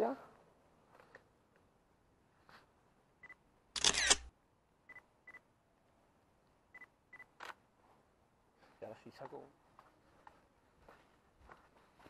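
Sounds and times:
camera shutter burst: 0:03.8 - 0:04.3
camera shutter clicks: 0:03.8 - 0:04.3.

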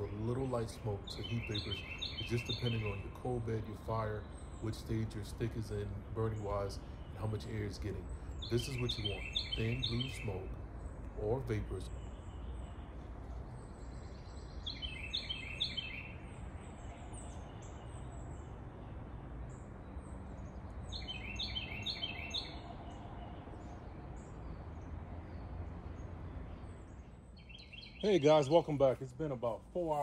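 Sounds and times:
high chirps: 0:00.0 - 0:12.6
songbird singing: 0:00.0 - 0:30.0.

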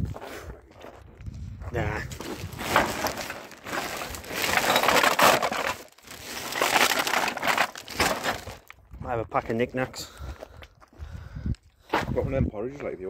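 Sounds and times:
loud crunching and crumpling: 0:00.0 - 0:08.8.

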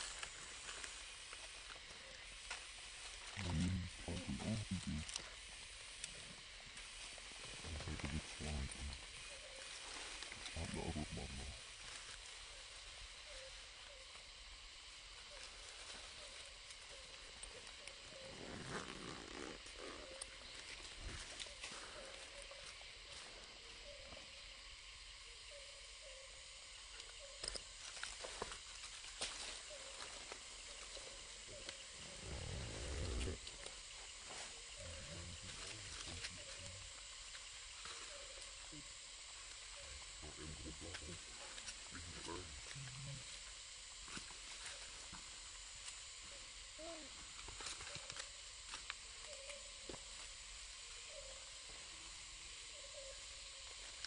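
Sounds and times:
steady hiss: 0:00.0 - 0:54.0
faint squeaky calls: 0:15.3 - 0:20.6, 0:52.7 - 0:53.3.

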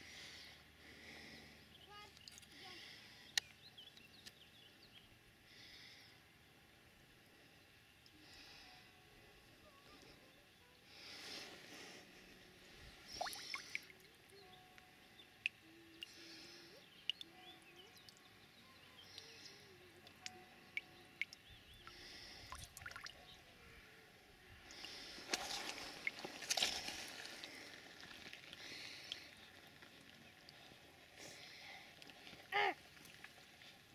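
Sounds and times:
water dripping: 0:13.1 - 0:14.0, 0:20.0 - 0:23.2
rustling and splashing: 0:24.7 - 0:33.9.

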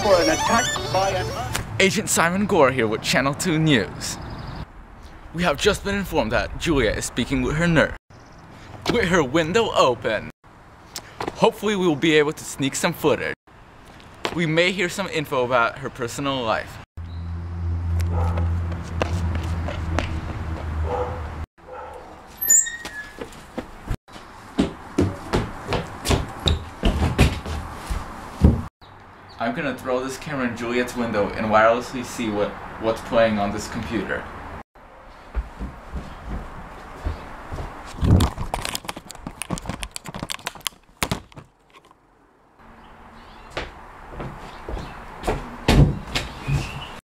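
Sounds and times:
metal gate squeaking: 0:00.0 - 0:01.6, 0:22.3 - 0:23.2.

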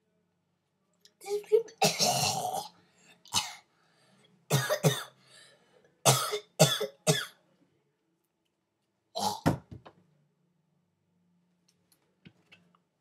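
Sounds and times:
person coughing: 0:01.8 - 0:02.7, 0:04.5 - 0:05.2, 0:06.1 - 0:07.4.

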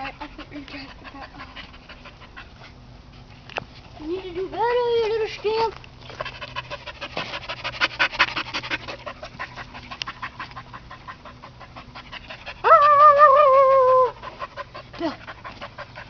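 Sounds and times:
dog panting: 0:00.0 - 0:03.4, 0:04.0 - 0:12.9, 0:13.9 - 0:16.0
dog wavering cry: 0:12.6 - 0:14.4.

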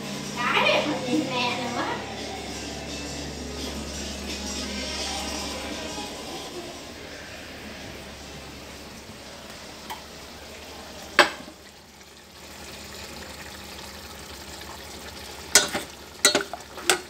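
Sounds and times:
cooking sizzling hiss: 0:00.0 - 0:17.0
ceramic bowl clacking on stove: 0:11.2 - 0:11.5, 0:15.6 - 0:17.0.

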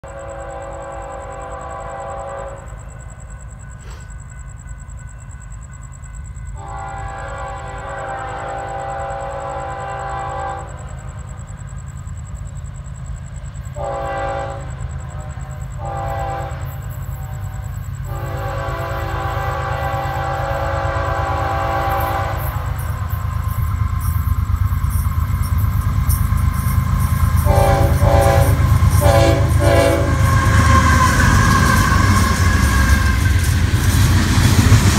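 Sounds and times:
locomotive air horn blasts: 0:00.0 - 0:02.8, 0:06.6 - 0:10.8, 0:13.8 - 0:23.0, 0:27.3 - 0:33.4
low rumble of train: 0:00.0 - 0:34.9.

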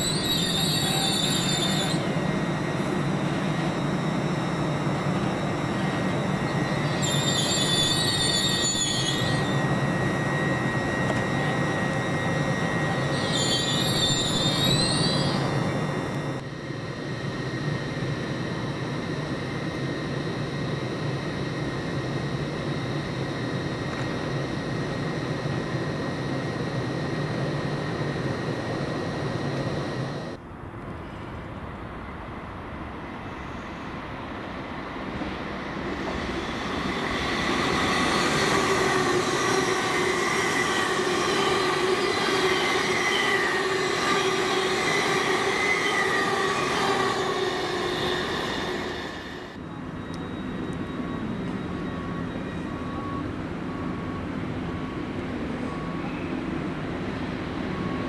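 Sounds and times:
steady hum with high whine: 0:00.0 - 0:13.2, 0:14.2 - 0:33.1
train passing with whine: 0:00.0 - 0:58.0.

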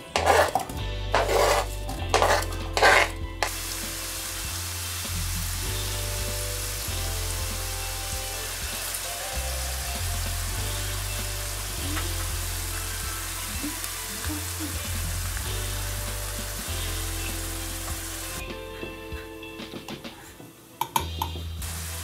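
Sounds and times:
spatula stirring: 0:00.0 - 0:03.6
apples sizzling in a frying pan: 0:00.1 - 0:18.4, 0:21.4 - 0:22.0.

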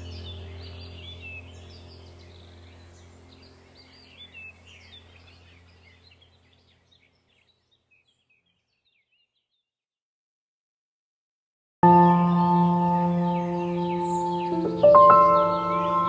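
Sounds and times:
low steady drone: 0:00.0 - 0:06.5, 0:11.8 - 0:16.0
small birds chirping: 0:00.0 - 0:09.8, 0:11.8 - 0:16.0.

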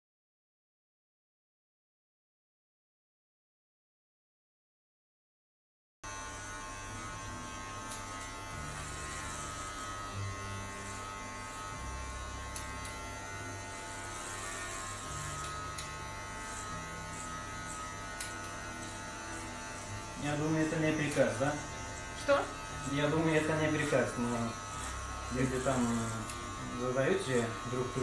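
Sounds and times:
electric hair clipper humming: 0:06.0 - 0:28.0.

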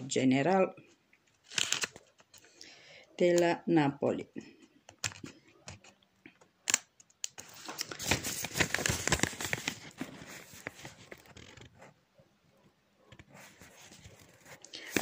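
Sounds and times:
rustling and crinkling handling noise: 0:00.8 - 0:02.6, 0:05.0 - 0:15.0.

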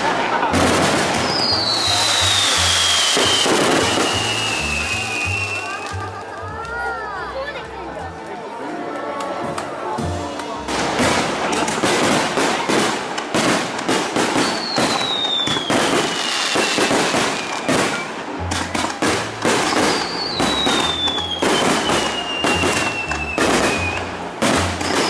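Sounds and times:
whistling fireworks: 0:00.0 - 0:06.0, 0:11.0 - 0:25.0
firework bangs and crackles: 0:00.0 - 0:07.6, 0:09.5 - 0:25.0.

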